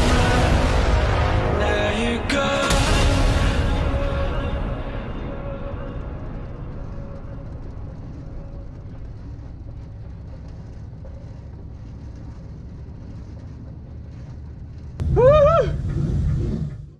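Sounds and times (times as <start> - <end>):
race car engine idling and revving: 6.0 - 16.9.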